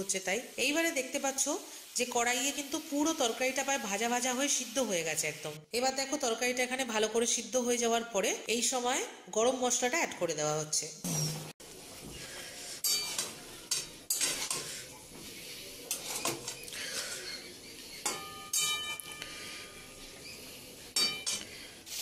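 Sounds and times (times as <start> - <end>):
light sizzle: 0.0 - 5.6, 11.6 - 22.0
metal spatula scraping a pan: 12.2 - 22.0
pan ringing: 18.1 - 19.4.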